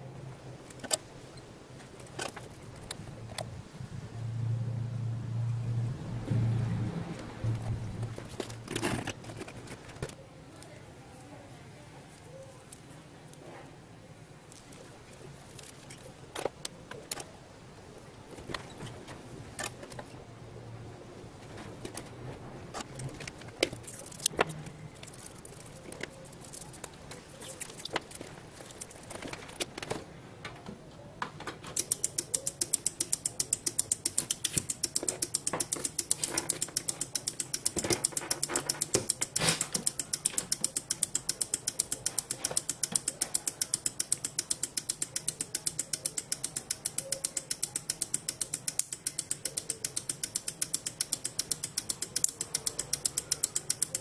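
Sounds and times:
relays clicking rapidly: 0:31.7 - 0:54.0.

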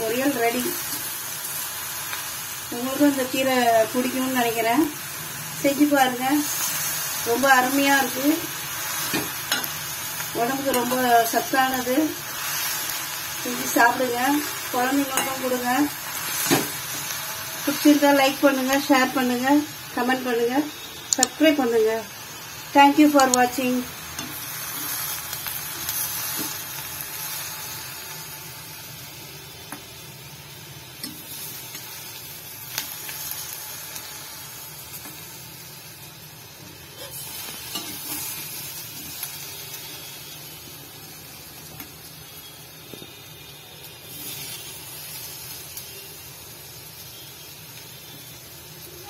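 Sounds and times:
leaves sizzling in a pan: 0:00.0 - 0:49.0
metal spatula clicking on pan: 0:21.1 - 0:21.4, 0:23.2 - 0:23.5.

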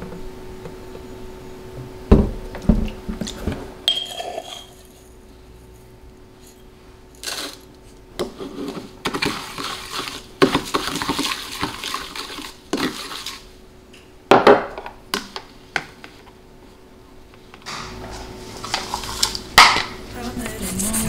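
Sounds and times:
metal spoon scraping and clinking: 0:03.9 - 0:05.0.

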